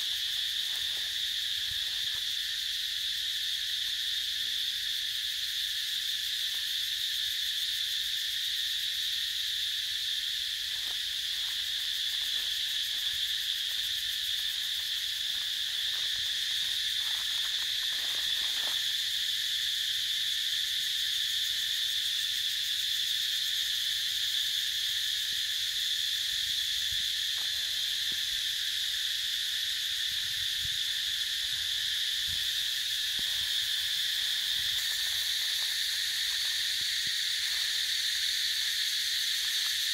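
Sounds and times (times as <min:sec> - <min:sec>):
insect chorus drone: 0:00.0 - 0:39.9.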